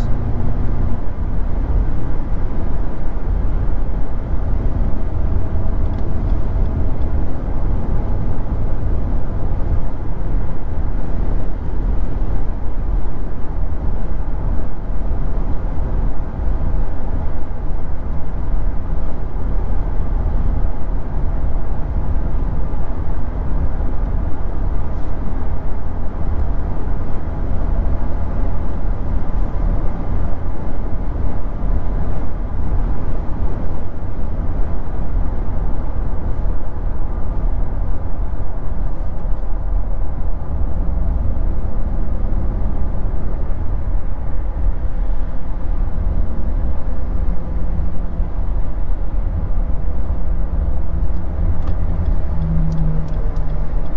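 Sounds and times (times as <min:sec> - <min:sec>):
road and tyre noise in car: 0:00.0 - 0:53.9.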